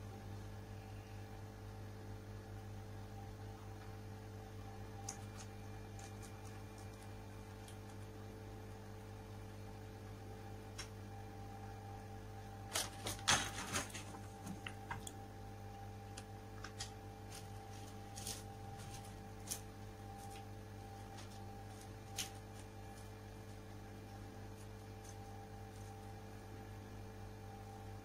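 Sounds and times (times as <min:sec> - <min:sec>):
low hum: 0:00.0 - 0:28.0
rice paper rustling and clicks: 0:05.0 - 0:08.1, 0:12.7 - 0:15.2, 0:16.1 - 0:23.7, 0:24.5 - 0:26.2.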